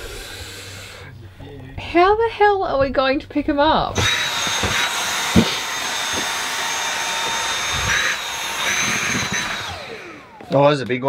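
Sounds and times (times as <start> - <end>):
handheld vacuum cleaner whining: 3.9 - 11.0.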